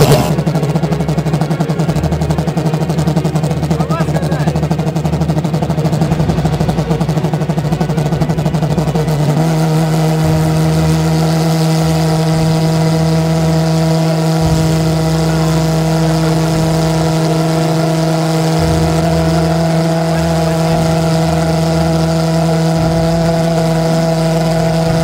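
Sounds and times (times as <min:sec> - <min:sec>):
pulsejet buzzing drone: 0:00.0 - 0:25.0.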